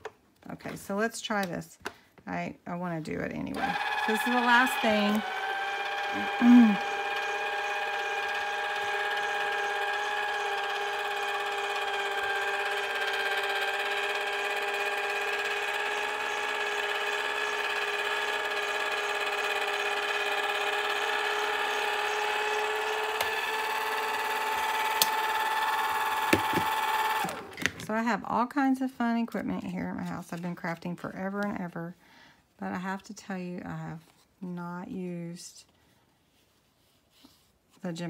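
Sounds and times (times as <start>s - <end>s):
machine motor whining: 3.6s - 27.7s.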